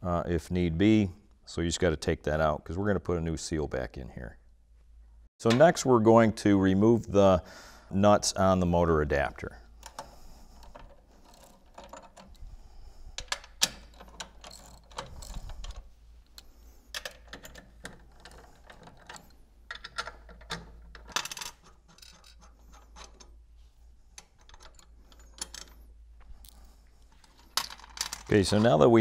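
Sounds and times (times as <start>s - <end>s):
metal nuts clinking: 9.8s - 12.5s, 13.2s - 23.4s.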